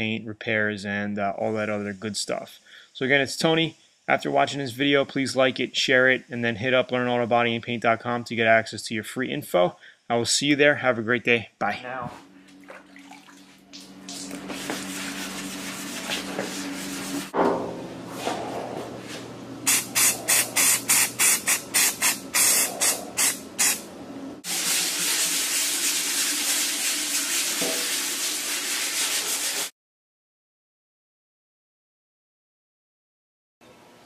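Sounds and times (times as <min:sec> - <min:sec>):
paint spraying hiss: 0:19.7 - 0:23.8.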